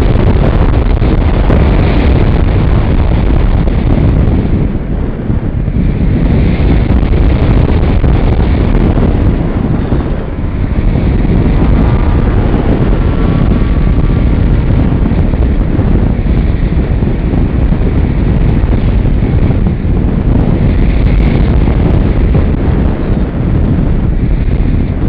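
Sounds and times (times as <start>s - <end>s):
wind rushing over microphone: 0.0s - 25.0s.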